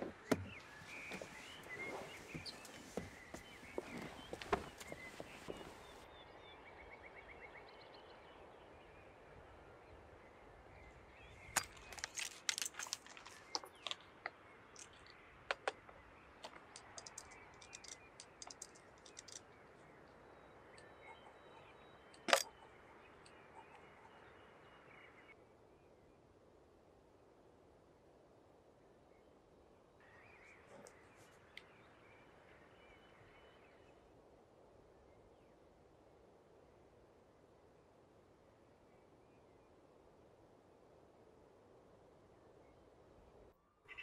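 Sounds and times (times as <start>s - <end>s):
rifle clicks and rattles: 11.6s - 14.0s, 15.5s - 19.5s, 22.2s - 22.6s.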